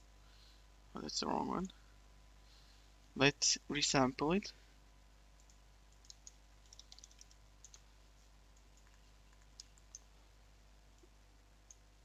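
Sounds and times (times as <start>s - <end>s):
low steady hum: 0.0s - 12.0s
keyboard and mouse clicks: 5.4s - 7.8s, 8.6s - 10.1s.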